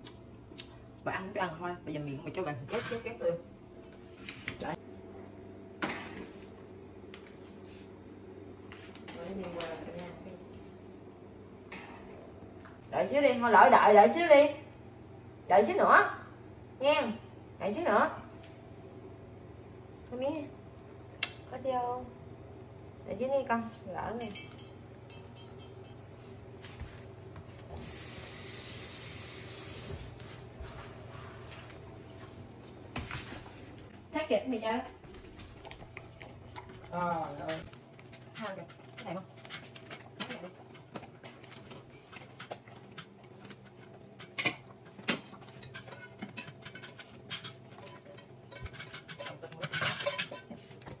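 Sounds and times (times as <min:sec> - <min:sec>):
sharp clinks on metal bowl: 0:24.2 - 0:26.0
dog chewing: 0:35.2 - 0:45.6
clicks of stirring in metal bowl: 0:36.6 - 0:51.0.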